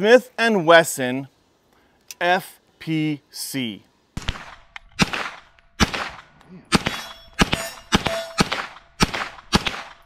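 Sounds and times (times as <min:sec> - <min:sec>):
semi-automatic gunshots: 0:04.2 - 0:10.0
metallic ring: 0:06.9 - 0:08.4.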